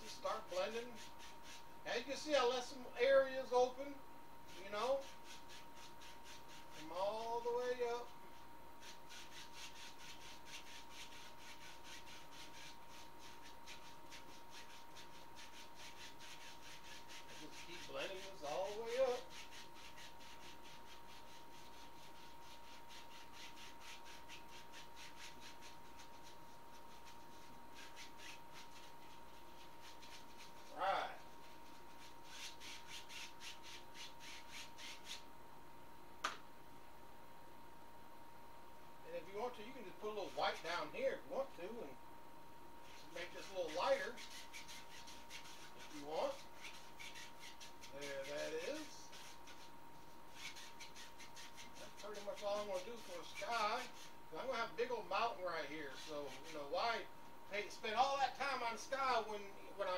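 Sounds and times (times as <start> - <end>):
paint brush scratching on canvas: 0.0 - 3.8, 4.4 - 35.3, 39.1 - 41.9, 42.8 - 59.9
faint steady hum: 0.0 - 59.9
sharp tap: 36.2 - 36.4.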